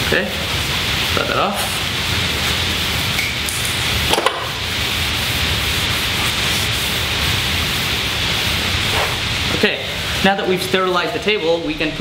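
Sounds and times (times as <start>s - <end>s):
steady hiss: 0.0s - 12.0s
paper towels rubbing on bench: 3.9s - 10.4s.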